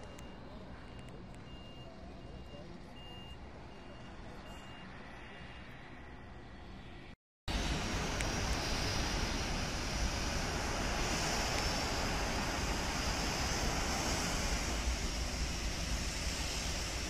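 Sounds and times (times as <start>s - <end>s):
wind buffeting microphone: 7.5s - 17.0s.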